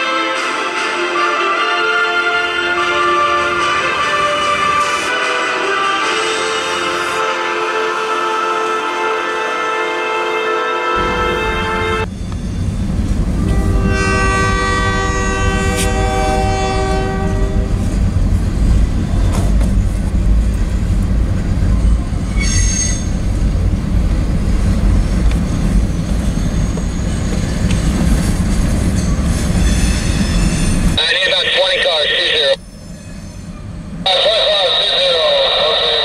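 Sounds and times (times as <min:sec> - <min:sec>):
train horn: 0:00.0 - 0:12.2, 0:13.4 - 0:18.0, 0:22.3 - 0:23.1
train rumbling on rails: 0:00.0 - 0:36.0
wheel squeal: 0:22.2 - 0:23.2, 0:25.3 - 0:28.2.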